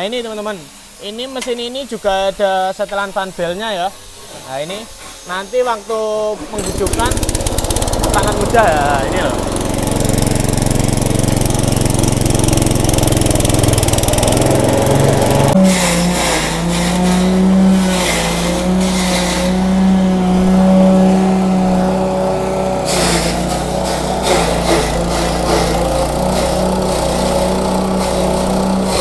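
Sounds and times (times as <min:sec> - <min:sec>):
petrol engine running: 0:06.4 - 0:29.0
chopper blades shredding stalks: 0:06.5 - 0:29.0.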